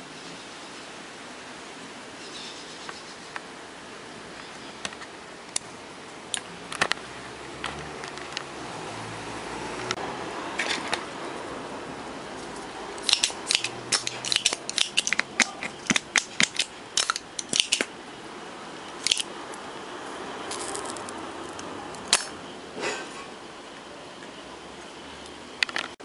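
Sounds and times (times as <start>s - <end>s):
sharp clicks and snaps: 13.0s - 17.9s, 18.9s - 19.3s, 20.5s - 22.4s.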